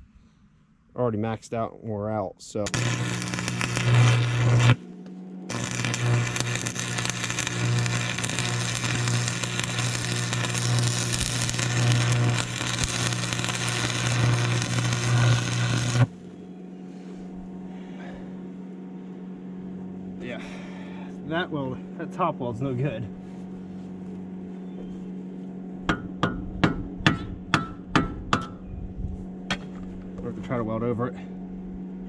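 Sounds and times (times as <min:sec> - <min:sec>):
low steady hum: 0:00.0 - 0:32.0
arc welding crackle and buzz: 0:02.6 - 0:16.2.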